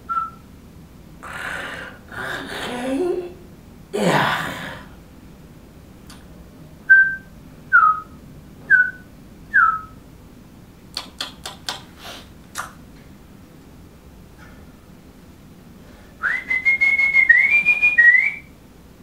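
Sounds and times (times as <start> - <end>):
person whistling bird peeps: 0.0 - 0.4, 6.9 - 10.0, 16.2 - 18.5
sharp clicks: 10.9 - 11.9.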